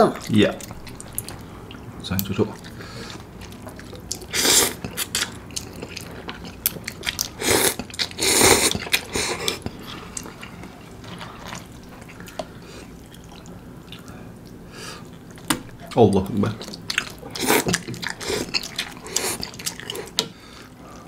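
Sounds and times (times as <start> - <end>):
chewing: 0.1 - 21.0
noodles being slurped: 2.6 - 13.0, 16.7 - 20.2.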